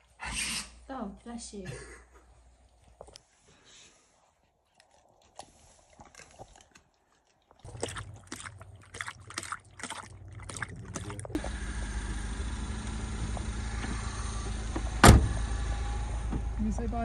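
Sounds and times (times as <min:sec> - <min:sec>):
dog lapping water: 0:04.7 - 0:11.5
car engine idling: 0:10.8 - 0:17.0.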